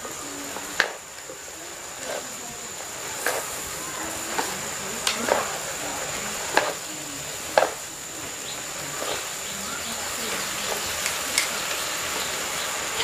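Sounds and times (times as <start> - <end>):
greens sizzling in a pan: 0.0 - 13.0.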